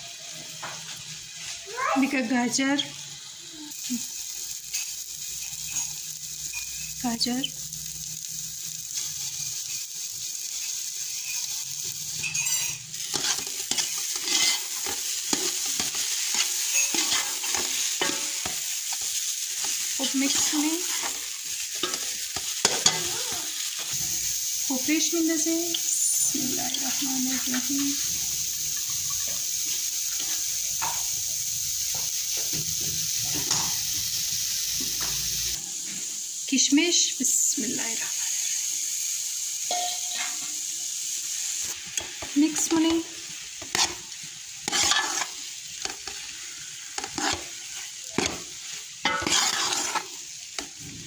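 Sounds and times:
semolina sizzling in a pot: 0.0 - 51.0
metal spoon scraping mixture: 12.2 - 19.1, 43.6 - 44.0, 44.6 - 46.3, 47.0 - 50.7.

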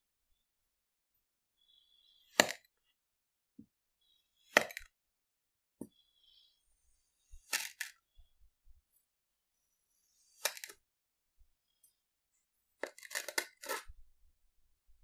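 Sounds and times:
cutter slicing sand: 10.0 - 10.8.

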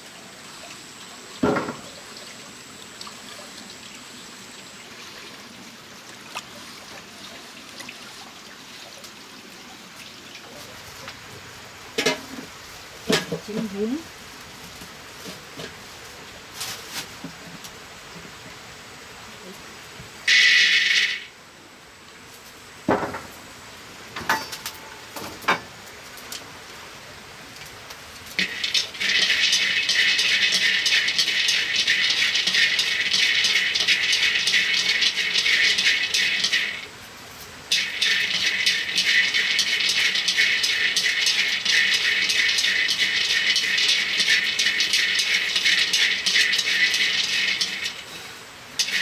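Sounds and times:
peanuts rattling in a metal wok: 20.3 - 21.2, 28.4 - 36.8, 37.7 - 48.0, 48.8 - 49.0.

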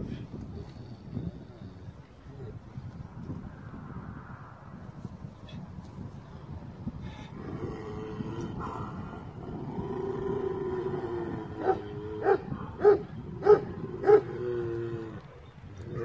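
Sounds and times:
dog growling: 7.4 - 16.0
dog barking deeply: 8.5 - 9.4, 11.1 - 15.0.

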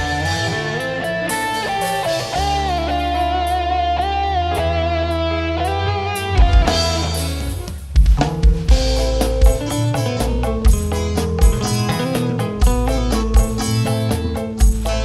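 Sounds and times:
live band instrumental: 0.0 - 15.0
heavy drum hits: 6.4 - 15.0.

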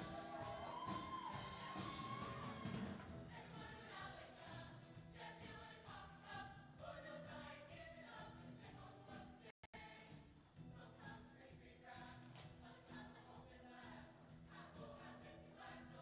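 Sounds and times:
musical accompaniment: 0.0 - 3.4
choir singing in harmony: 0.0 - 16.0.

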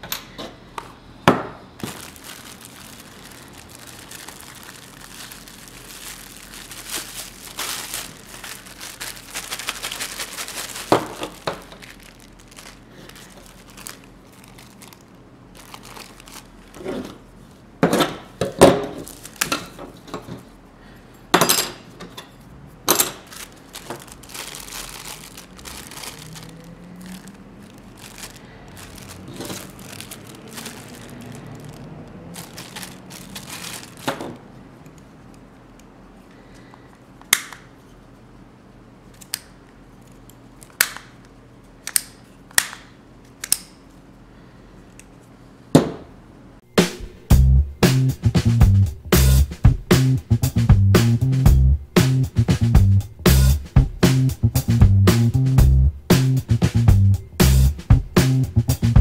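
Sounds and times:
plastic bags crinkling: 1.8 - 17.3, 18.9 - 19.8, 22.9 - 34.8.

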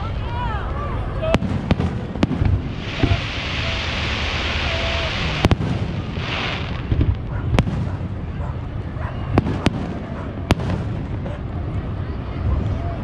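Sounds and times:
fireworks hissing: 1.3 - 8.2
fireworks bangs: 1.3 - 11.6.

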